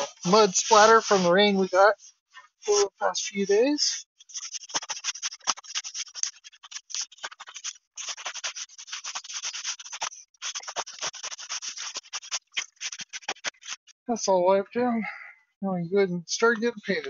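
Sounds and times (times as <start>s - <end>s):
hand rubbing wall board: 4.3s - 13.9s.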